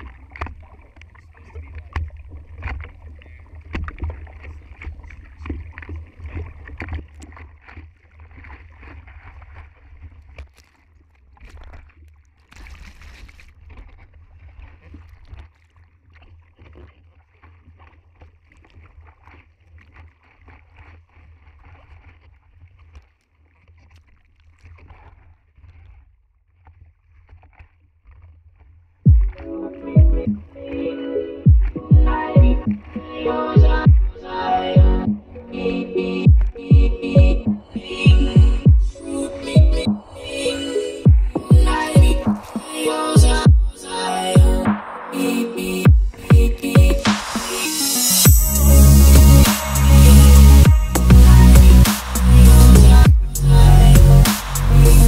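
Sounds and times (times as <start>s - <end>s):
low rumble of water: 0.0s - 30.8s, 31.4s - 43.8s
water splashing against surfboard: 0.0s - 31.0s, 31.6s - 48.0s.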